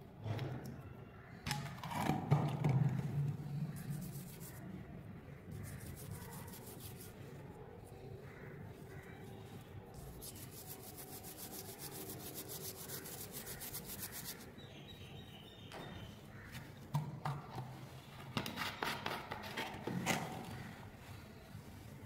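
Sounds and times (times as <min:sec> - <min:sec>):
toothbrush scrubbing metal: 0:05.5 - 0:07.2, 0:10.2 - 0:14.5.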